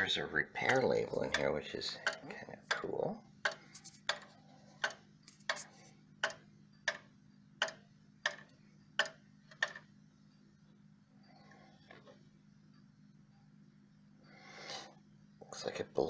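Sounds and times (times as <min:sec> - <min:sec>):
wall clock ticking: 0:00.0 - 0:09.8
faint steady hum: 0:00.0 - 0:16.0.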